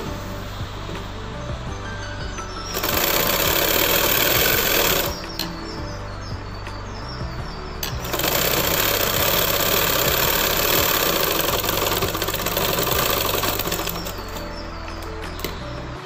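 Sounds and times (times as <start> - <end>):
sewing machine rattling: 2.7 - 5.2, 7.8 - 14.5.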